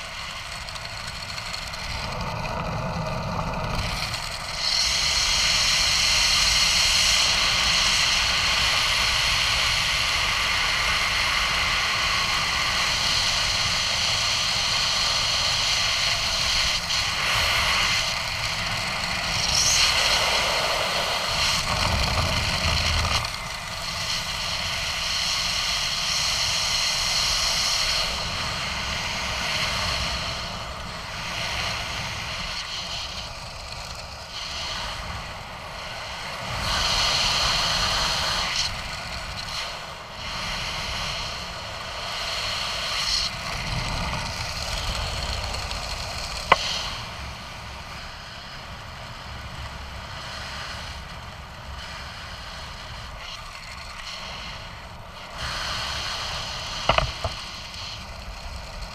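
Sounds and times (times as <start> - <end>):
wind rushing over microphone: 0.0 - 58.9
sharp click: 56.9 - 57.4.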